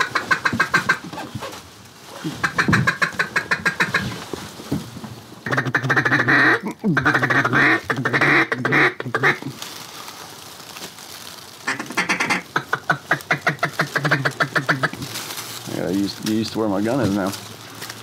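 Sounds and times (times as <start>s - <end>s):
duck call hen quacks: 0.0s - 1.2s, 2.2s - 4.1s, 5.4s - 9.5s, 11.6s - 15.0s.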